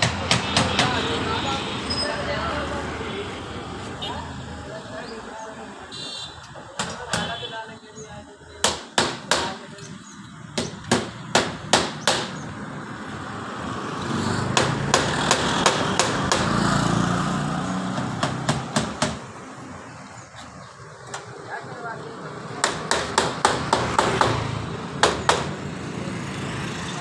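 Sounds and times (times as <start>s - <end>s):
sharp knocks: 10.6s - 12.4s, 14.5s - 16.6s, 17.9s - 19.2s.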